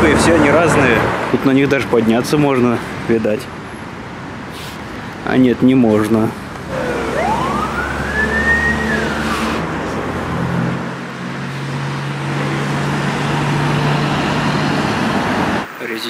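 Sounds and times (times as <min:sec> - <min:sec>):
vehicle engines running: 0:00.0 - 0:15.8
rising and falling whine: 0:06.7 - 0:10.0.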